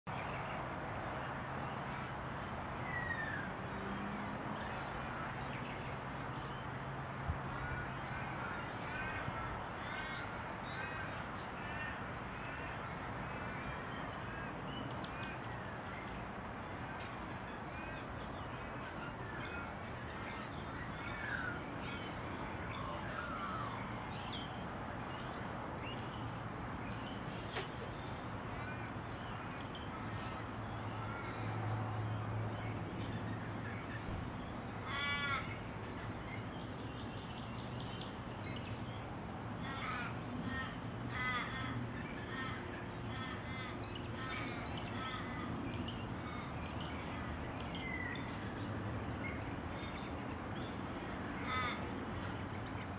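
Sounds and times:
crows cawing: 34.8 - 35.6, 39.6 - 45.5, 51.4 - 51.8.

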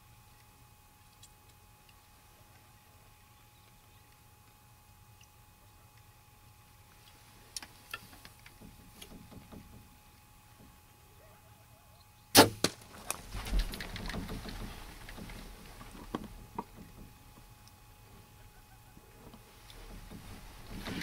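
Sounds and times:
bow shot crack: 12.3 - 15.2
arrow hitting deer: 12.3 - 17.0.

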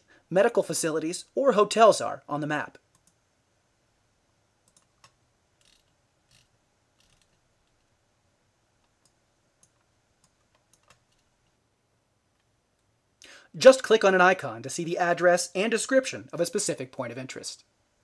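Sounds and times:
computer mouse clicks: 2.9 - 3.2, 4.6 - 7.9, 8.8 - 11.3.

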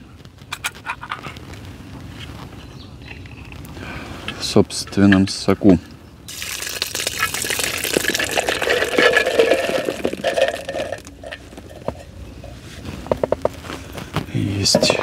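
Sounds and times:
juice splashing onto bait: 6.3 - 11.2.

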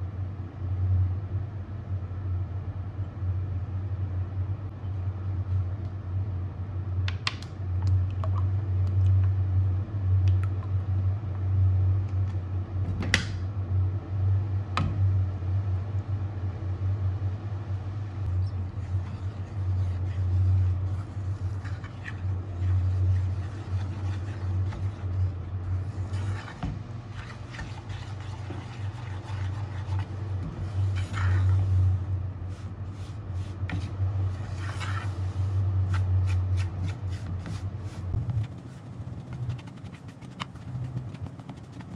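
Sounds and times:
low hum: 0.0 - 41.9
wooden spoon scraping saucepan: 18.4 - 32.0, 32.9 - 37.7.

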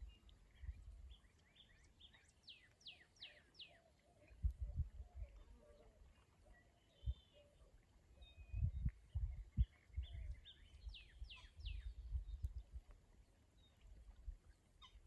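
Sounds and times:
wind gusts on microphone: 4.4 - 5.5, 8.4 - 12.8
birds chirping and calling: 9.6 - 12.0.

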